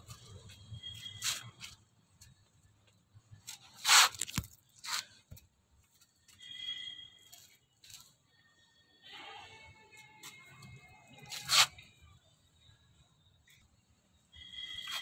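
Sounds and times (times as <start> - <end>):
scraping rustling noises: 0.0 - 2.0, 3.4 - 5.3, 10.2 - 12.0
faint high chirping: 10.4 - 15.0.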